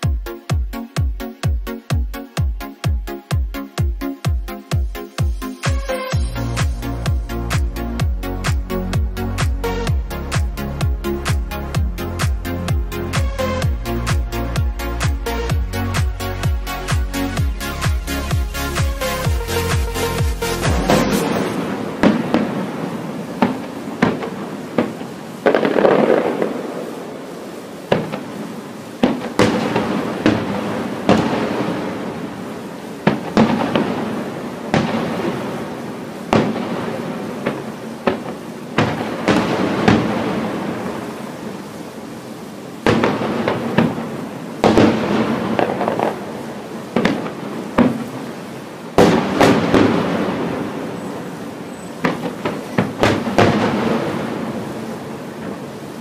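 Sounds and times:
firework shells bursting: 20.6s - 26.8s, 27.9s - 28.4s, 29.0s - 32.2s, 33.0s - 35.6s, 36.3s - 41.0s, 42.9s - 46.3s, 49.0s - 50.9s, 52.0s - 54.6s.

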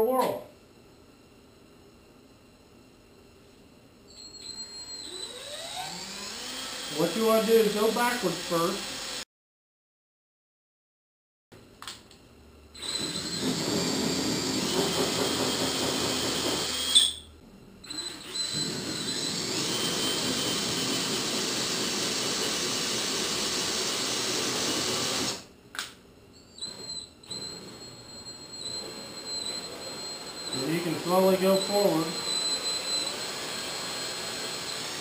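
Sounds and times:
cordless drill whining: 4.1s - 9.2s, 12.8s - 25.5s, 26.4s - 35.0s
drill squealing: 4.1s - 9.2s, 12.8s - 25.4s, 26.4s - 35.0s.

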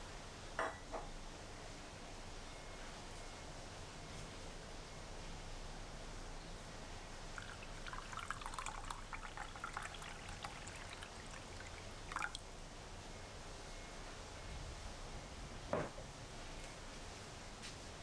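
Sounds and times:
water pouring into saucepan: 7.4s - 12.4s
water splashing: 7.4s - 12.4s.

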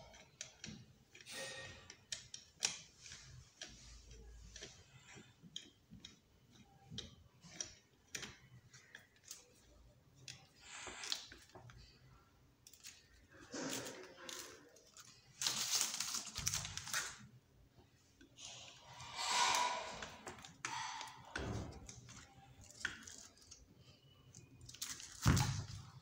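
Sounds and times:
screwdriver clicks and metal scrapes: 0.0s - 11.9s, 18.3s - 25.1s.

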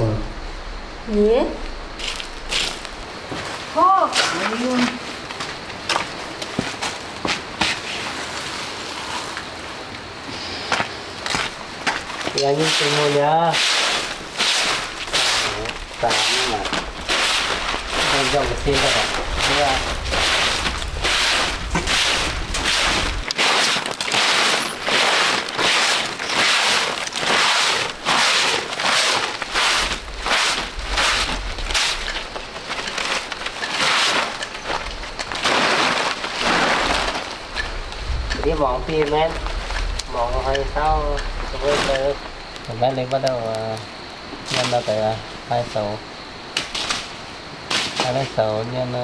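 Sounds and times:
steady hiss: 0.0s - 49.0s
grit scraped on concrete: 12.4s - 42.2s.

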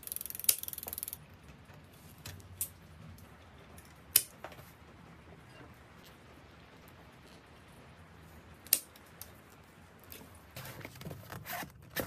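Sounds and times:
ratchet clicking: 0.0s - 1.2s.

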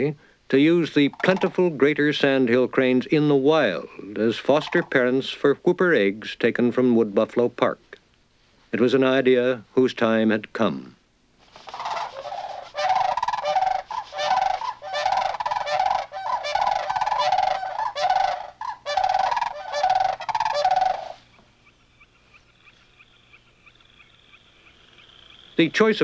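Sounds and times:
cranes calling: 1.0s - 1.7s, 4.5s - 5.0s, 11.5s - 25.8s.

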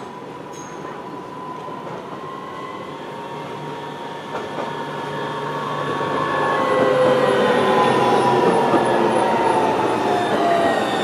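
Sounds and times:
tram whining on track: 0.0s - 11.0s.

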